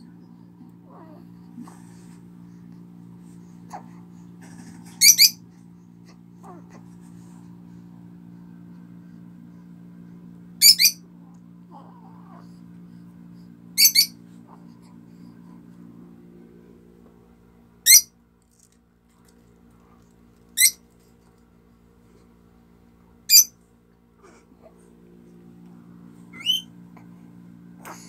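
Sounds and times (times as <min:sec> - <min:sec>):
steady low hum: 0:00.0 - 0:28.0
lovebird shrill calls: 0:05.0 - 0:05.4, 0:10.6 - 0:11.0, 0:13.8 - 0:14.1, 0:17.9 - 0:18.1, 0:20.6 - 0:20.8, 0:23.3 - 0:23.5, 0:26.4 - 0:26.7.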